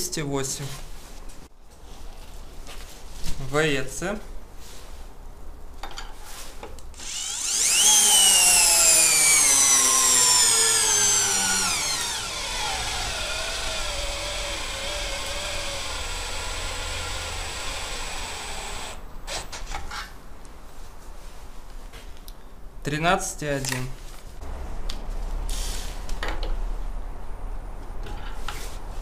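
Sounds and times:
cordless drill whining: 0:07.0 - 0:19.4.

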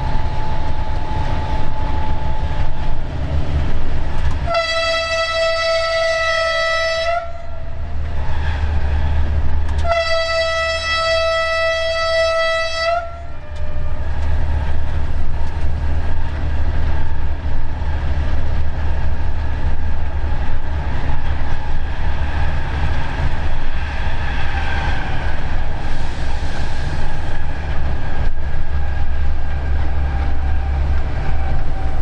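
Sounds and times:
moving train rumble: 0:00.0 - 0:32.0
locomotive horn blast: 0:04.4 - 0:07.8, 0:09.8 - 0:14.1.

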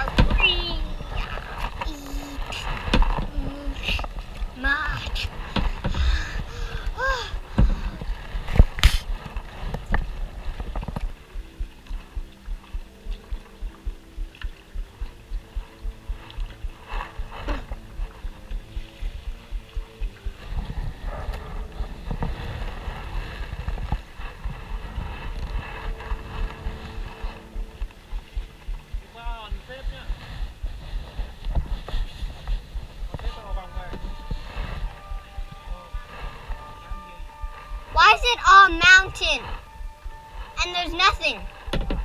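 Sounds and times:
paddle strokes in water: 0:00.0 - 0:38.0
faint background music: 0:00.0 - 0:42.0
wind buffeting microphone: 0:00.0 - 0:42.0
paddle knocking on plastic hull: 0:07.4 - 0:21.4, 0:41.7 - 0:42.0.

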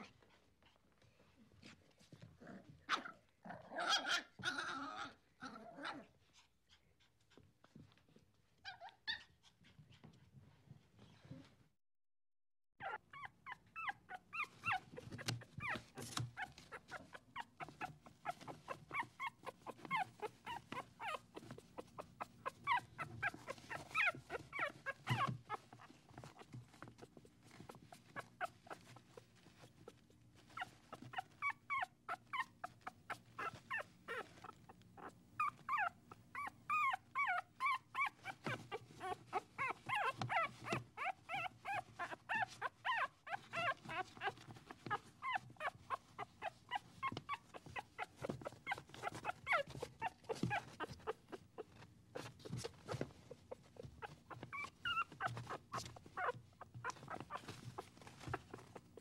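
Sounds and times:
dog whimpering and yipping: 0:08.6 - 0:09.5, 0:12.8 - 0:59.0.

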